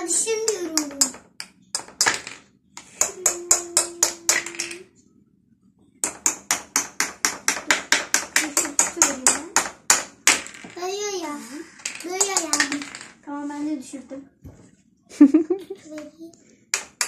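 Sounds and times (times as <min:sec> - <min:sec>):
plastic hammers tapping plastic blocks: 0:00.0 - 0:04.9, 0:06.0 - 0:10.8, 0:11.8 - 0:13.1, 0:16.7 - 0:17.0.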